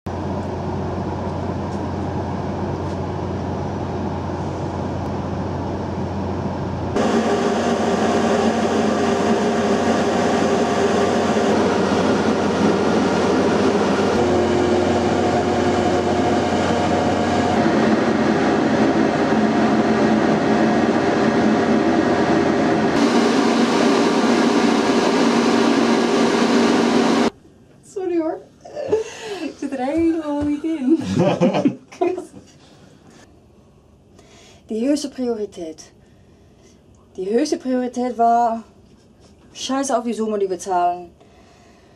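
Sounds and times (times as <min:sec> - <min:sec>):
ship machinery drone: 0:00.1 - 0:27.4.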